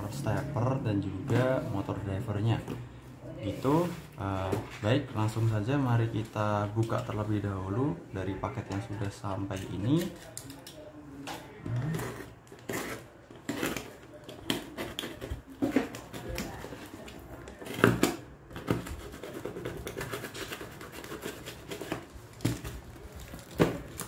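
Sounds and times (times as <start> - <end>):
cutter scraping cardboard: 11.8 - 16.8, 17.6 - 22.1
packing tape tearing: 11.8 - 24.0.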